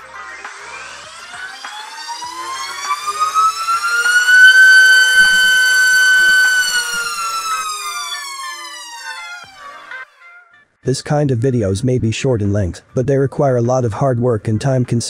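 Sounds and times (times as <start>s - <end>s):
electric motor propeller whine: 0.5s - 10.0s.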